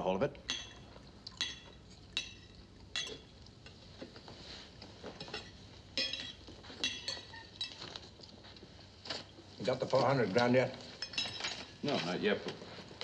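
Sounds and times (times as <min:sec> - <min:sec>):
silverware clinking on a plate: 0:00.4 - 0:03.8, 0:05.1 - 0:08.1, 0:10.9 - 0:12.1.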